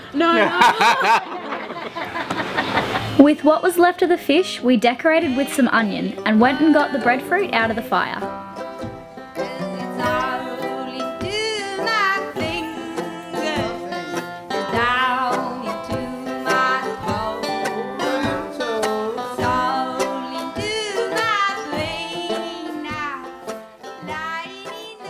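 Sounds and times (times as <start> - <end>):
song with plucked strings: 3.2 - 25.0
person singing: 5.0 - 8.3, 9.2 - 25.0.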